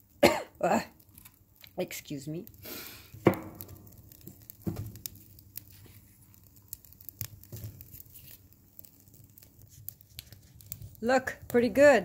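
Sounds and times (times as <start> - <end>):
kindling fire crackling: 0.0 - 12.0
soft knocks in stove: 3.2 - 3.7, 4.6 - 5.0.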